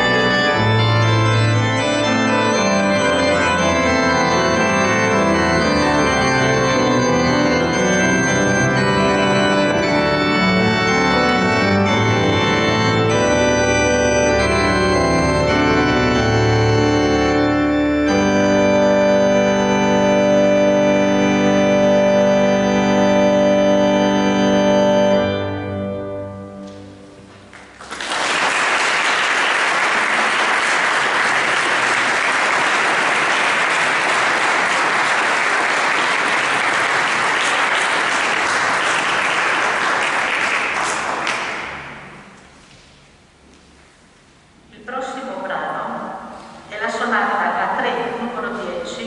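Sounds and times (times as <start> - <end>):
organ chord: 0.0 - 42.6
audience applauding: 27.4 - 42.3.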